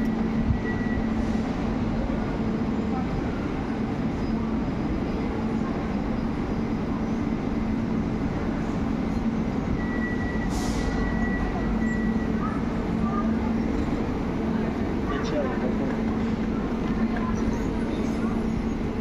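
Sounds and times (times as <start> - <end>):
train equipment humming: 0.0 - 19.0.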